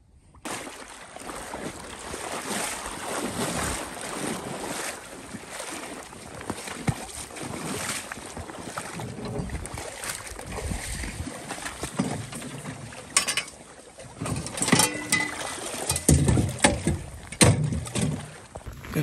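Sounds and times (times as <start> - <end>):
sharp knocks and clunks: 14.2 - 18.7.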